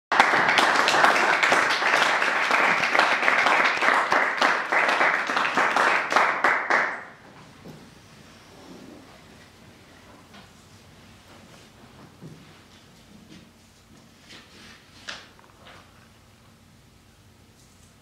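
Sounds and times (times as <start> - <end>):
audience applauding: 0.1 - 7.2.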